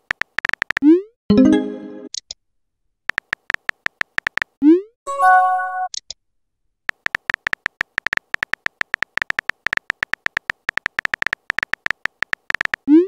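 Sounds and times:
keyboard tap clicks: 3.1s - 4.5s, 6.9s - 12.8s.

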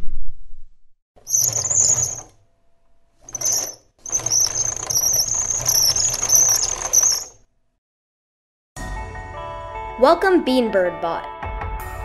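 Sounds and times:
electric wheel motors whining: 1.3s - 2.4s, 3.2s - 7.4s.

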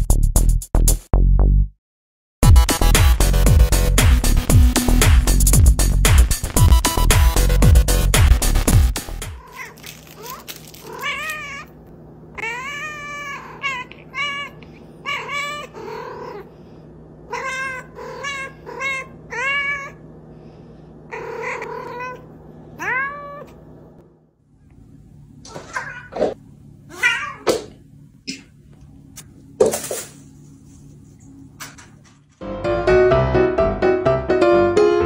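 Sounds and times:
loud electronic music: 2.4s - 9.4s
cat meowing: 9.4s - 11.8s, 12.4s - 16.4s, 17.3s - 20.0s, 21.1s - 22.2s, 22.8s - 23.6s, 25.5s - 26.2s, 26.9s - 27.6s.

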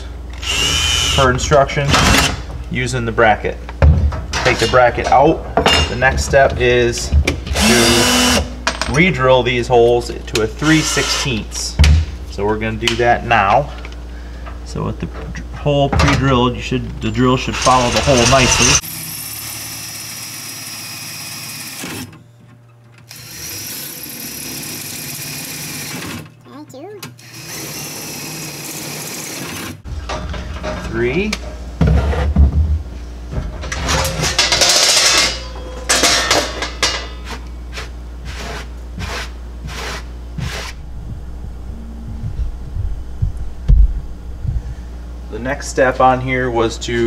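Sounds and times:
cordless drill whirring through metal: 0.4s - 1.2s, 7.6s - 8.4s, 10.7s - 11.3s, 23.1s - 26.1s, 27.2s - 29.8s.

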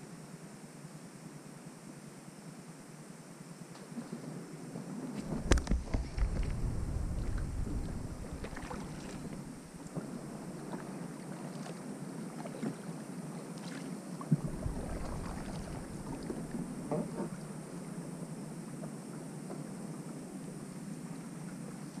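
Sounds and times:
wind on the microphone: 5.0s - 10.7s, 14.3s - 18.4s
paddle splashing in water: 5.2s - 18.1s.

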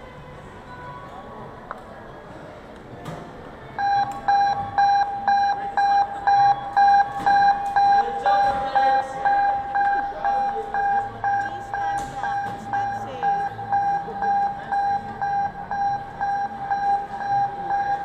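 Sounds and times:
electronic alarm beeping: 3.8s - 18.0s.

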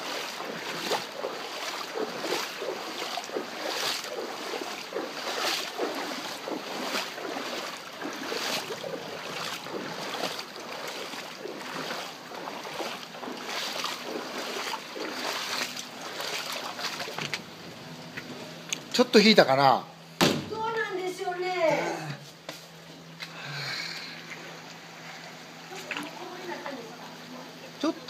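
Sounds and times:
flowing water rushing: 0.0s - 17.5s
footsteps splashing through water: 0.0s - 17.5s.

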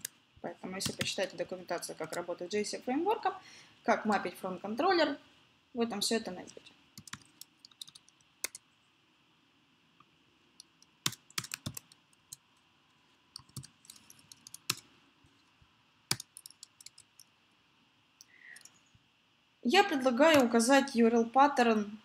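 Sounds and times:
typing on computer keyboard: 0.8s - 1.2s, 7.0s - 8.6s, 11.0s - 12.4s, 13.4s - 14.8s, 16.1s - 17.3s.

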